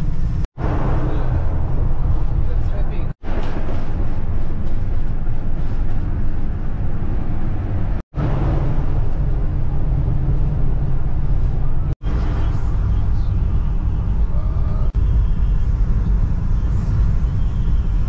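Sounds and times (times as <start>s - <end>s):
road and engine rumble inside vehicle: 4.1s - 8.0s, 8.8s - 18.0s.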